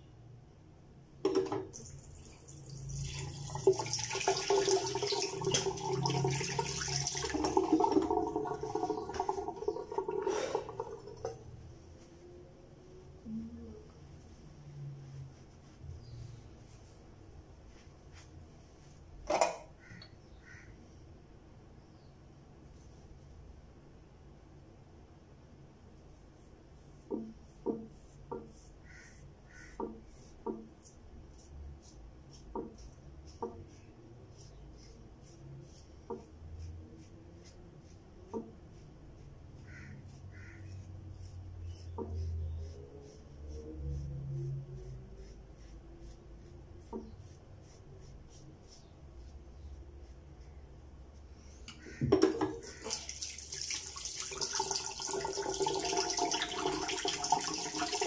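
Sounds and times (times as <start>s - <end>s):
water running into sink: 1.3s - 11.4s, 52.1s - 58.0s.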